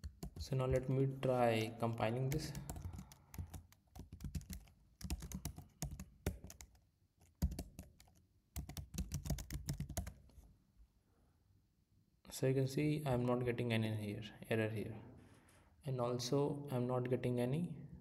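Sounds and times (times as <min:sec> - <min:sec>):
typing on computer keyboard: 0:00.0 - 0:01.0, 0:01.8 - 0:10.2.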